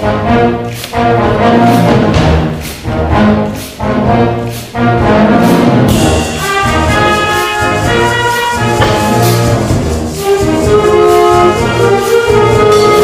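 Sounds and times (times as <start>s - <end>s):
wind band playing: 0.0s - 13.0s
drum hits: 5.8s - 10.6s.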